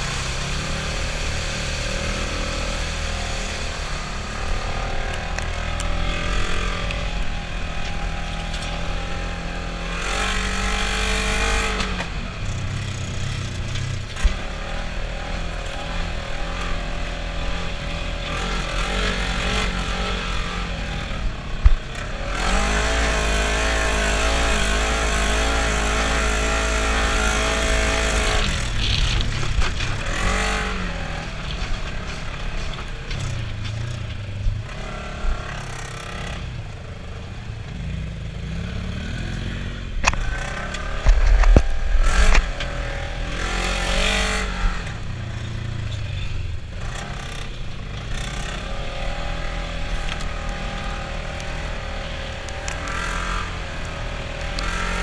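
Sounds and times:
off-road vehicle engine revving: 0.0s - 55.0s.

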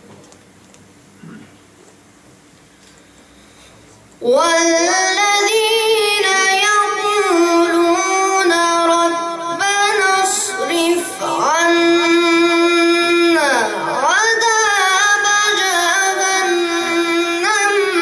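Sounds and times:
boy reciting melodically: 4.2s - 18.0s.

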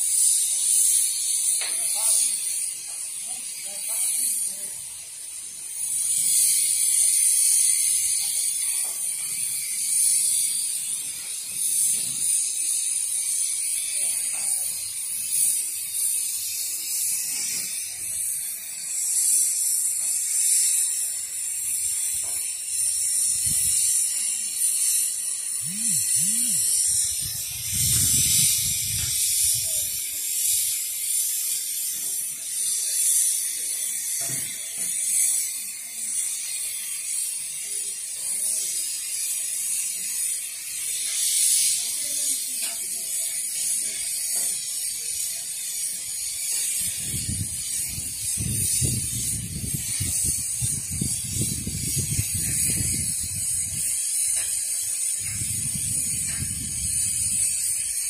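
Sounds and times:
high-pitched hiss: 0.0s - 58.0s.

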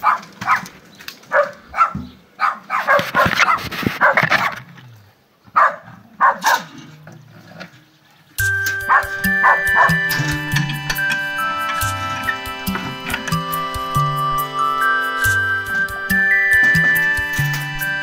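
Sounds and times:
dog barking: 0.0s - 0.7s, 1.3s - 4.6s, 5.5s - 6.8s, 8.9s - 10.0s
music: 8.4s - 18.0s.

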